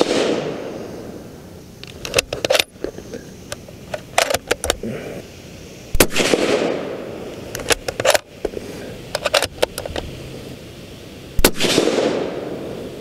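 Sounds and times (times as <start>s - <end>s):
suppressed rifle shot: 0.0s - 0.7s, 5.9s - 7.0s, 11.4s - 12.6s.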